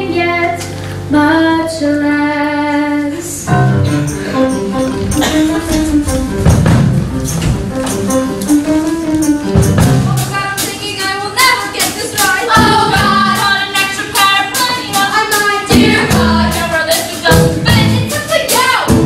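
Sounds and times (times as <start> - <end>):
backing music: 0.0 - 19.0
girls singing: 10.0 - 19.0.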